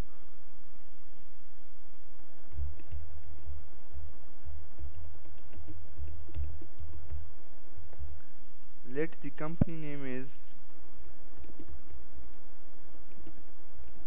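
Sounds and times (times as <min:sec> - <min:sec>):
computer keyboard typing: 0:02.5 - 0:03.5, 0:04.8 - 0:07.2, 0:11.4 - 0:11.7.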